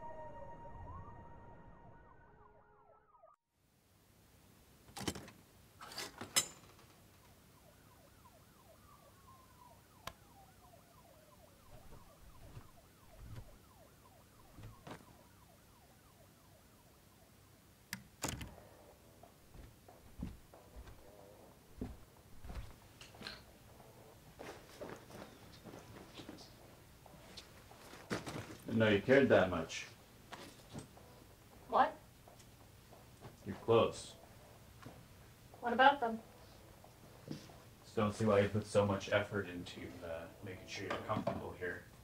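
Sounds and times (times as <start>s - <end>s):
faint siren-like gliding tone: 0.0s - 3.4s, 7.5s - 17.6s.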